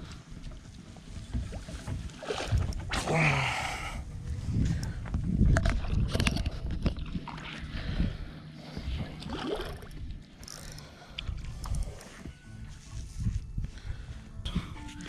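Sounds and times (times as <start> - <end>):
wind rumble on microphone: 0.0 - 10.3, 11.2 - 14.8
fish thrashing and water splashing: 9.1 - 10.0.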